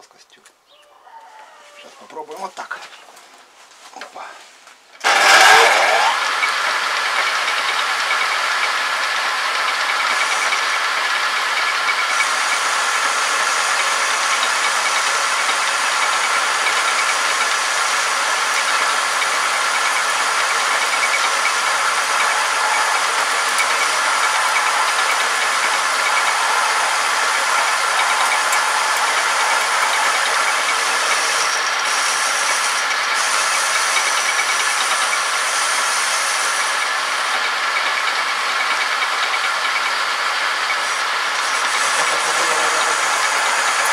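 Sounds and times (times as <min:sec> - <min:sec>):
cutting hiss: 0:05.0 - 0:07.8, 0:08.5 - 0:37.1, 0:40.9 - 0:43.9
lathe machine whine: 0:05.0 - 0:43.9
high thin tone: 0:19.2 - 0:32.4.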